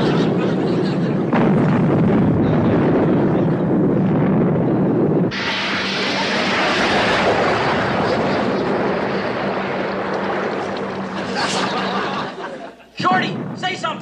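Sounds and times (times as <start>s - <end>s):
boat engine rumble: 0.0s - 12.8s
wind: 0.0s - 14.0s
torpedo rushing hiss: 5.3s - 11.9s.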